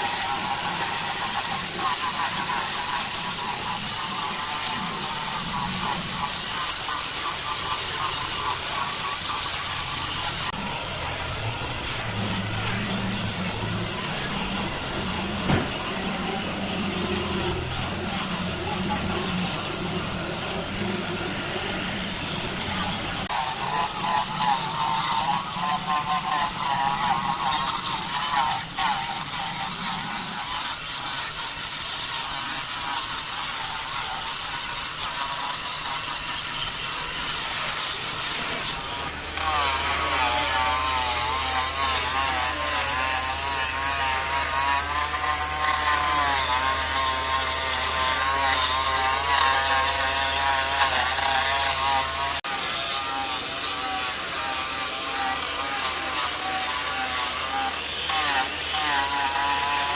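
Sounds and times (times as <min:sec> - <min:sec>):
power saw cutting wood: 0:00.0 - 0:59.9
steady low hum: 0:08.0 - 0:23.3.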